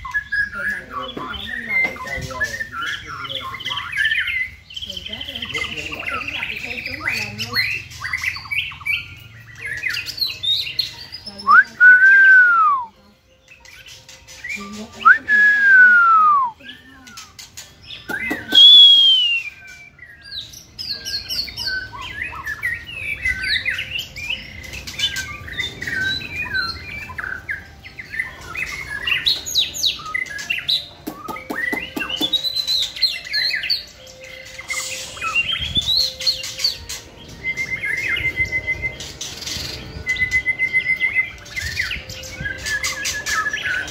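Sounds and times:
birds singing: 0:00.0 - 0:43.9
loud arched bird whistles: 0:18.1 - 0:19.9.

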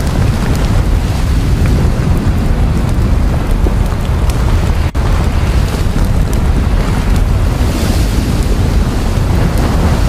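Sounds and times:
deep volcanic rumbling: 0:00.0 - 0:10.0.

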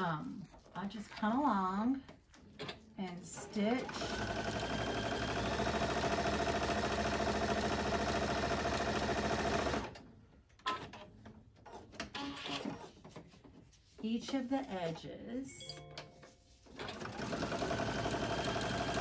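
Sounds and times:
sewing machine running: 0:03.8 - 0:10.0, 0:16.8 - 0:19.0.

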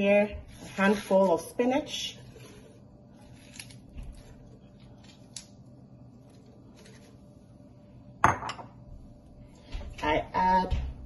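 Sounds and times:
dish knocking on stone countertop: 0:08.2 - 0:08.7.

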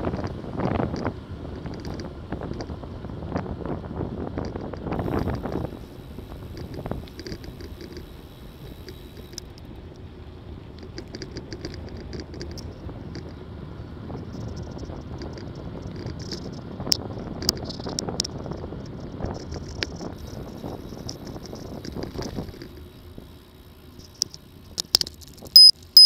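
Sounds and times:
wind buffeting microphone: 0:00.0 - 0:23.3
tyre and road rumble: 0:00.0 - 0:26.0
sharp clicks: 0:24.1 - 0:25.8.

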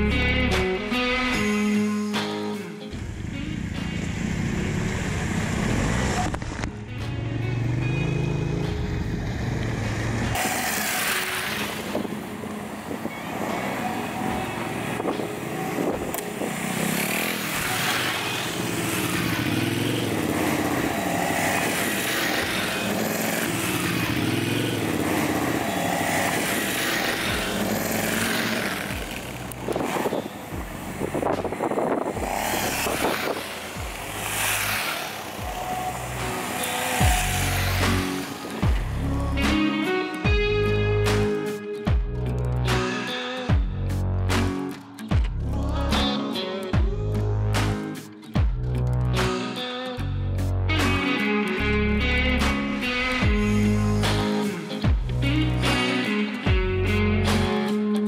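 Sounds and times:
motorcycle engines revving: 0:01.3 - 0:41.4, 0:50.7 - 0:58.0
water splashing around wheels: 0:10.4 - 0:12.1, 0:16.4 - 0:38.5.

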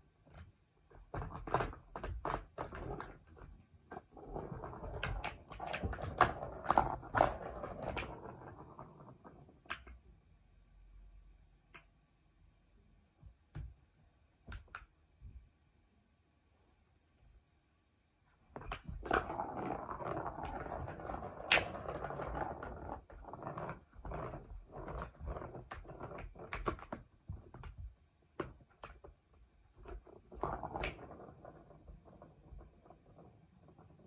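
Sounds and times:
ball rattling around plastic track: 0:01.0 - 0:10.0, 0:18.5 - 0:34.0.

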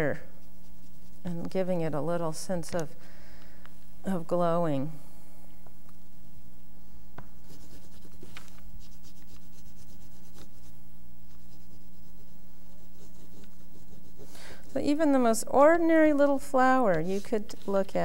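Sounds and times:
pastel scratching on paper: 0:00.3 - 0:01.6, 0:07.4 - 0:15.0, 0:16.9 - 0:18.0.

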